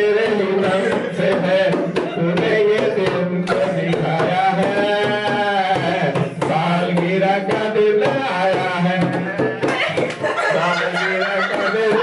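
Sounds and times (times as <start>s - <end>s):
man singing into microphone: 0.0s - 9.7s, 10.5s - 12.0s.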